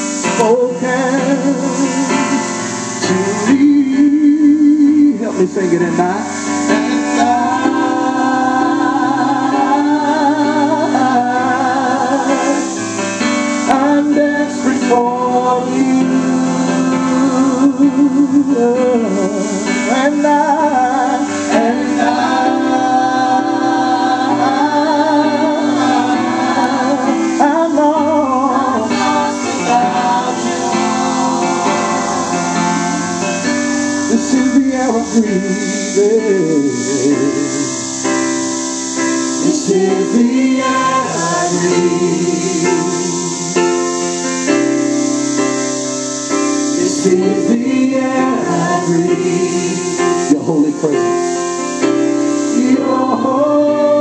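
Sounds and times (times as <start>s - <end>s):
electric keyboard accompaniment: 0.0s - 54.0s
gospel group singing in harmony: 0.0s - 54.0s.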